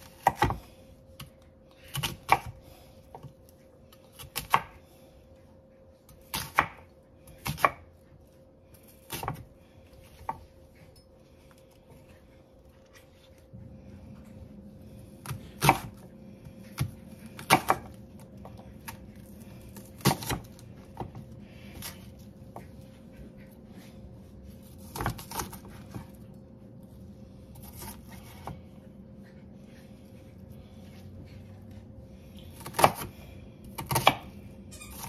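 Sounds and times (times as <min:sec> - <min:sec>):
faint steady hum: 0:00.0 - 0:35.0
knife chopping on wooden board: 0:16.8 - 0:19.0, 0:33.8 - 0:34.3.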